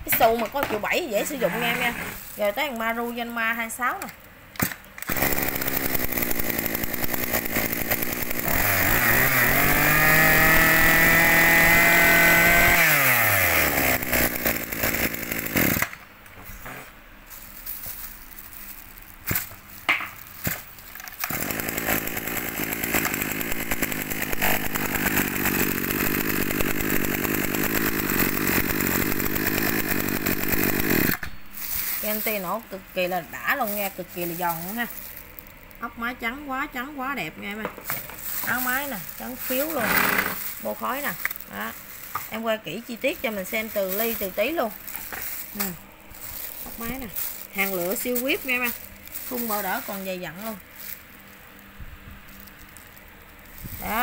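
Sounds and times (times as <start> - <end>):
brush cutter engine revving: 1.1 - 2.6, 5.0 - 16.0, 20.4 - 32.6, 37.8 - 51.3, 52.3 - 54.0.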